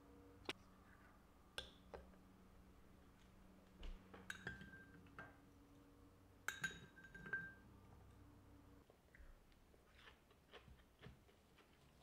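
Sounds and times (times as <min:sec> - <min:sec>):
metal spoon clinking on glass bowl: 0:04.3 - 0:05.0, 0:06.4 - 0:07.7.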